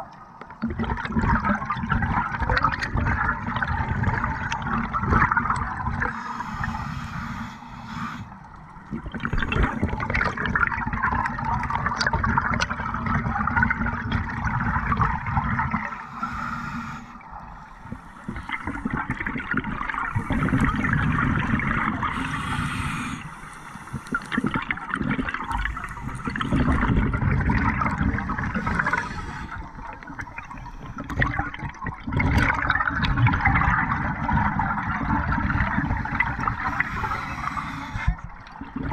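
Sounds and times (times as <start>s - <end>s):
regulator exhaled bubbles gurgling: 0.0s - 38.9s.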